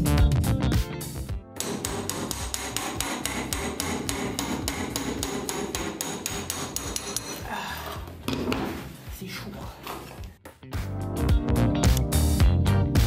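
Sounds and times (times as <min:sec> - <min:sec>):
hammer striking steel chisel: 0:01.6 - 0:07.5.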